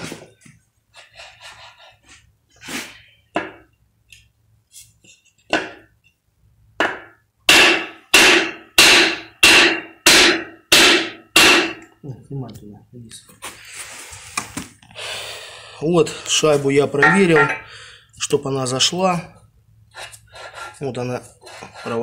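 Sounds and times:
sledgehammer striking wooden block: 6.8s - 11.8s, 17.0s - 17.6s.

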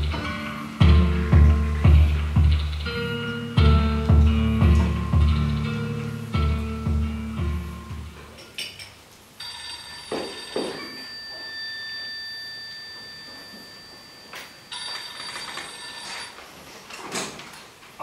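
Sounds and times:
telephone ringing: 9.4s - 16.6s.

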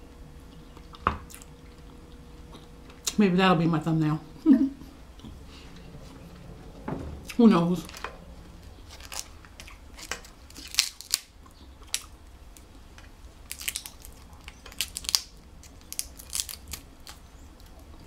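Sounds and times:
crab shells cracking: 8.9s - 18.0s.

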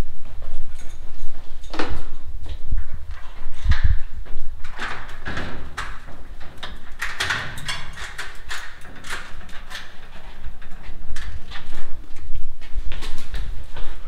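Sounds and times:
lattice door unlocking and opening: 4.6s - 11.8s.

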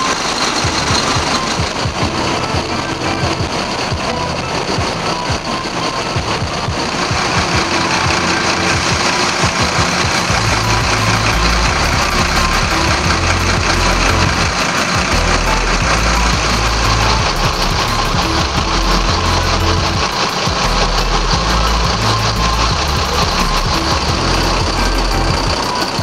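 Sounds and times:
diesel engine idling: 0.0s - 26.0s.

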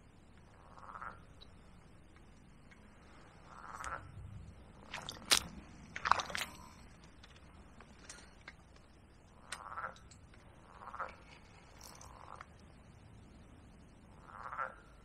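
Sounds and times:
frogs croaking: 0.0s - 12.9s, 13.6s - 15.0s
sharp clicks and crunches: 4.8s - 8.9s.

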